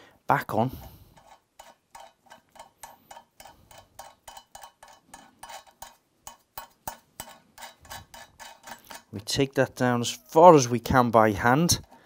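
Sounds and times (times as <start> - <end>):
nut spinning on threads clicking: 1.2 - 9.1.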